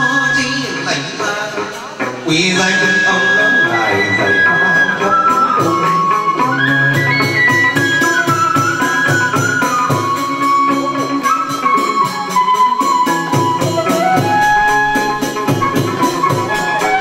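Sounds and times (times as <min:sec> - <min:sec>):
moon lute: 0:00.0 - 0:17.0
melody: 0:02.3 - 0:17.0
fast clicking percussion beat: 0:05.4 - 0:17.0.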